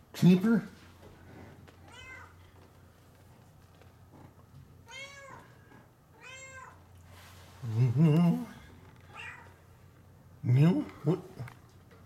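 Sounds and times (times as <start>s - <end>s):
cat meowing: 1.8s - 2.4s, 4.8s - 5.5s, 6.2s - 6.8s, 9.1s - 9.6s.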